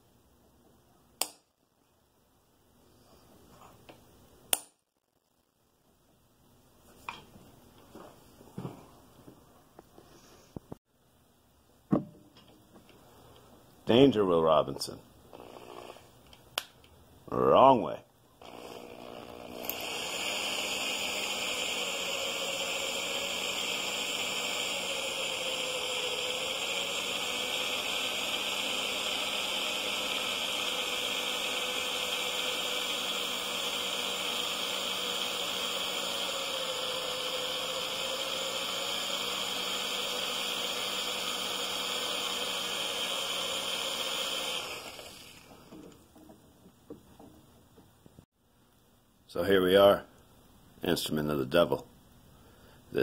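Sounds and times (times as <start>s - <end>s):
electric drill boring into steel: 15.3s - 16.1s, 18.4s - 45.6s.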